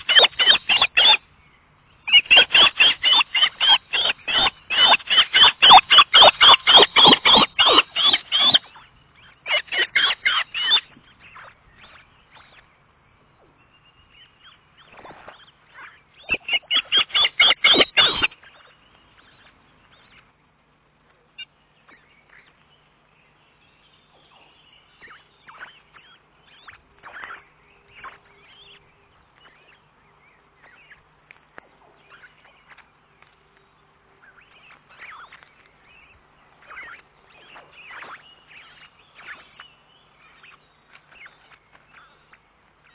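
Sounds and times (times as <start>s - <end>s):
osprey shrill whistled calls: 0.0s - 1.2s, 2.1s - 12.6s, 14.4s - 20.2s, 24.3s - 28.8s, 34.2s - 42.9s
faint bird chirps: 0.0s - 20.4s, 21.1s - 42.9s.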